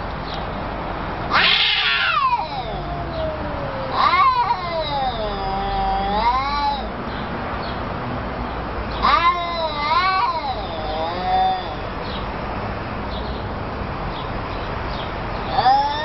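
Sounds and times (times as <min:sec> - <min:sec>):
cats yowling: 0:01.3 - 0:07.0, 0:08.9 - 0:12.0, 0:15.4 - 0:16.0.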